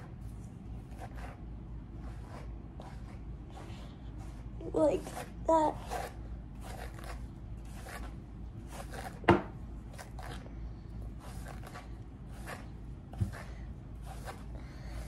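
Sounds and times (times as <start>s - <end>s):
hairbrush rasping through hair: 2.0s - 9.2s, 11.1s - 15.0s.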